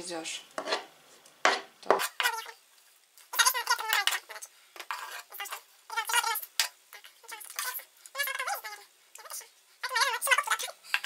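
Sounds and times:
scraping on wooden cutting board: 0:00.6 - 0:00.9, 0:01.5 - 0:02.4, 0:04.8 - 0:05.3
high wavering voice-like sounds: 0:05.2 - 0:10.8.

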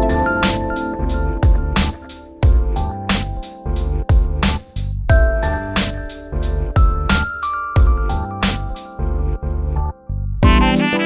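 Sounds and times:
held synth notes: 0:00.0 - 0:03.1
steady drum beat: 0:00.0 - 0:08.2, 0:10.4 - 0:11.0
heavy bass: 0:00.0 - 0:11.0.

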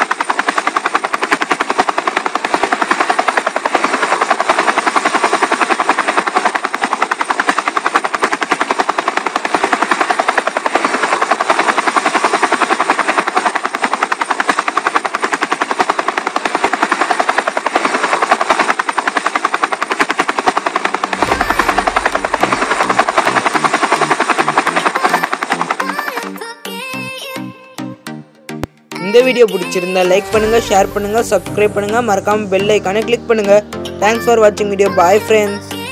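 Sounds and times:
toy motors whirring rattle: 0:23.0 - 0:26.2.

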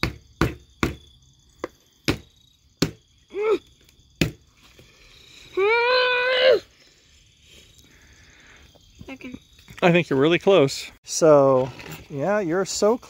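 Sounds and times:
knocks on wooden board: 0:00.0 - 0:01.0.

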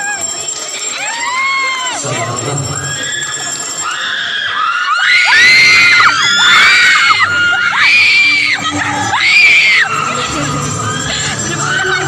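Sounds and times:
crowd noise: 0:00.0 - 0:12.0
young voices screaming: 0:00.9 - 0:02.0, 0:02.8 - 0:12.0.

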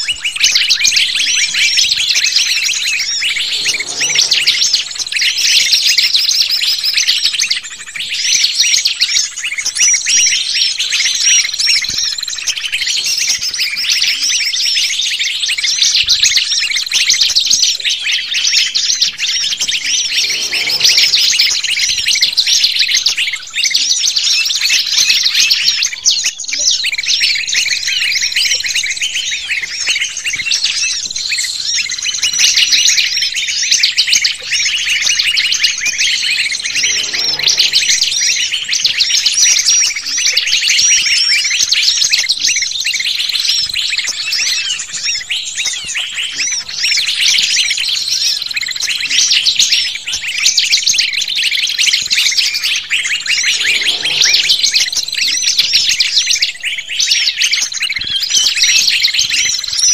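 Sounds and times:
small birds chirping and twittering: 0:00.0 - 0:59.9
thin steady high tone: 0:00.1 - 0:06.6, 0:19.2 - 0:22.8, 0:35.1 - 0:39.7, 0:52.0 - 0:57.4.

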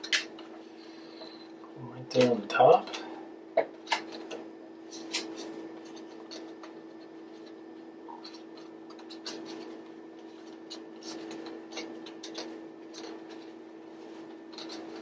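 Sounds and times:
steady low hum: 0:00.0 - 0:15.0
paper crinkling and tapping: 0:03.6 - 0:15.0.

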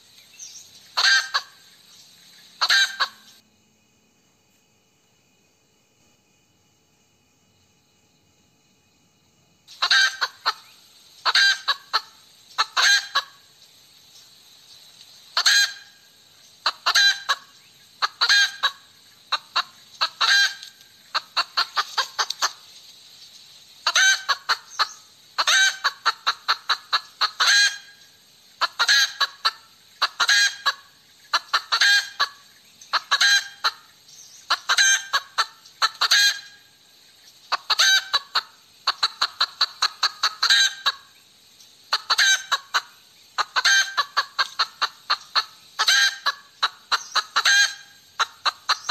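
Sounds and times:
hen cackling: 0:01.0 - 0:01.8, 0:02.6 - 0:03.4, 0:09.7 - 0:13.5, 0:15.3 - 0:22.7, 0:23.8 - 0:36.8, 0:37.5 - 0:41.2, 0:41.8 - 0:48.9.

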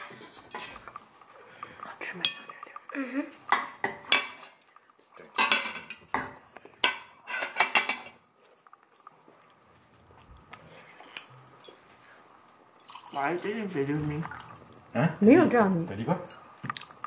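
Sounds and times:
fork clinking and scraping on plate: 0:00.0 - 0:01.0, 0:05.3 - 0:08.2.

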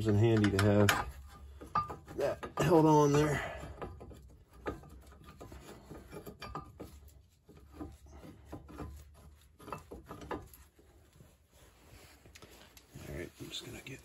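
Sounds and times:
hands fitting metal part: 0:00.0 - 0:10.7
cloth brushing: 0:10.4 - 0:14.0.

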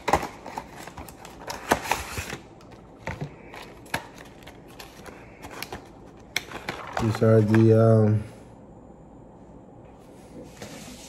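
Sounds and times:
packaging clicks and rustles: 0:00.0 - 0:07.9.

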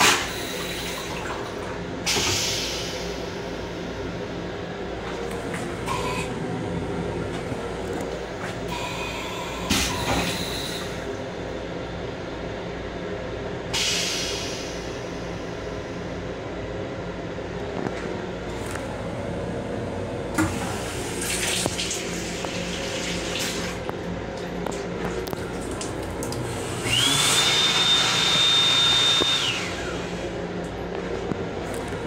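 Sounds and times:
faucet running water: 0:20.9 - 0:29.3
small motor high whine: 0:26.5 - 0:30.3.

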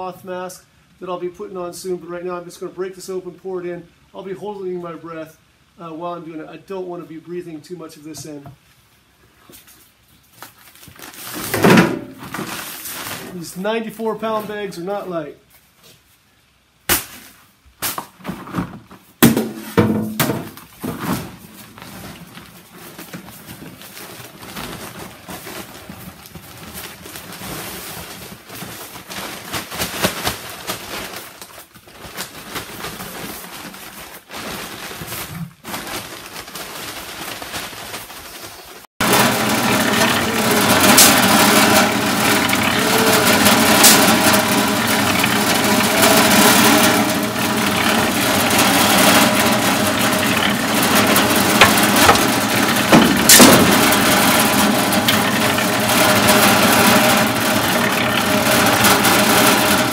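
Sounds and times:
concrete mixer running: 0:39.0 - 0:59.9
powder pouring into plastic tub: 0:39.0 - 0:59.9
shovel knocking paper bag: 0:39.0 - 0:59.9.

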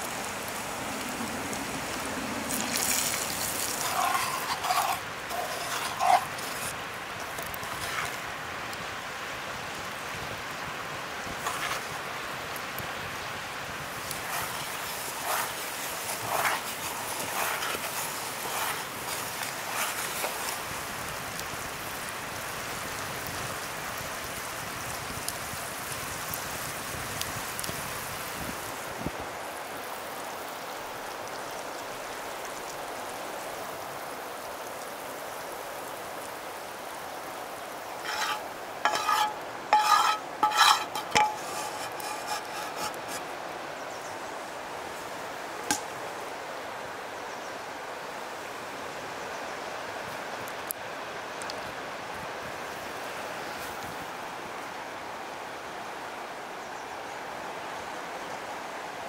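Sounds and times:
steady hiss: 0:00.0 - 0:59.0
metal utensil scraping cookware: 0:03.6 - 0:08.2, 0:14.2 - 0:20.4, 0:38.0 - 0:43.3.

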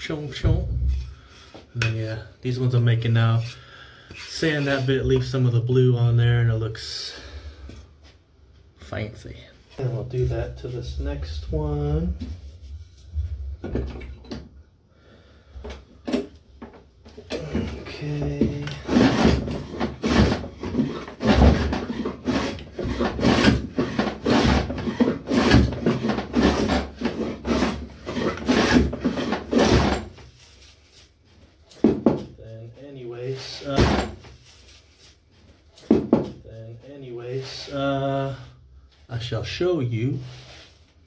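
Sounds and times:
hand plane strokes on wood: 0:18.4 - 0:30.2.

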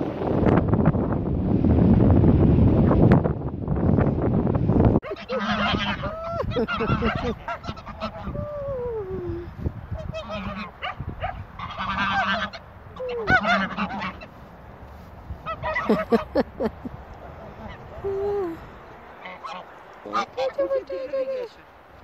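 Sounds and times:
geese honking: 0:05.0 - 0:08.4, 0:10.0 - 0:14.4, 0:15.4 - 0:16.7, 0:19.1 - 0:21.4.

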